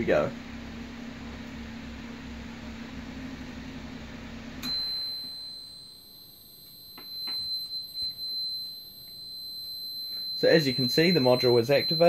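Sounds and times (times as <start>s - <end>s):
electric fan humming: 0.0s - 12.0s
high-pitched alarm buzzer: 4.6s - 12.0s.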